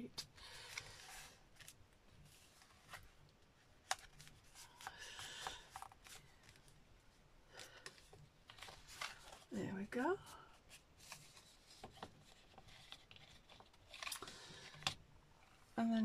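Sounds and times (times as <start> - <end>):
cardstock rustling: 7.6 - 15.0.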